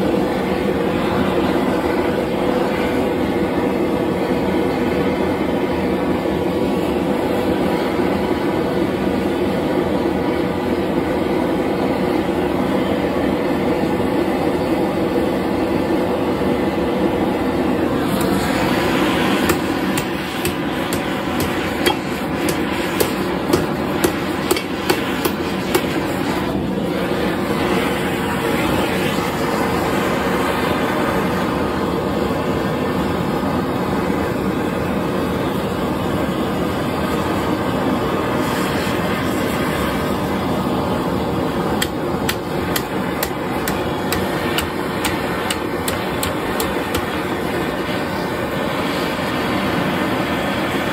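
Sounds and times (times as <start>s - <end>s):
propane torch hissing: 0.0s - 50.9s
hammer blows on metal: 19.3s - 26.0s, 41.8s - 47.2s.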